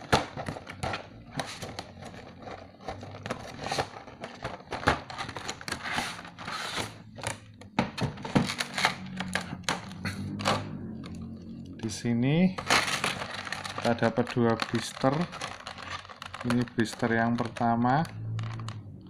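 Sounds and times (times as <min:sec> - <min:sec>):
cardboard box being opened: 0:12.6 - 0:16.6
plastic crinkling: 0:12.6 - 0:18.8.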